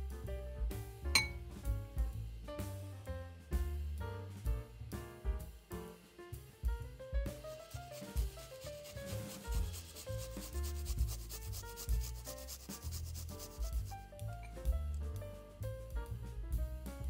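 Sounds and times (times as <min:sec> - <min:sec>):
background music: 0:00.0 - 0:17.0
garlic rasping on a grater: 0:07.8 - 0:14.0.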